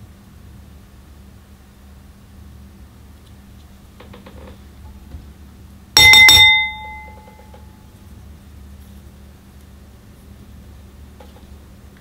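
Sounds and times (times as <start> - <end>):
hard object clinking: 6.0 - 7.5.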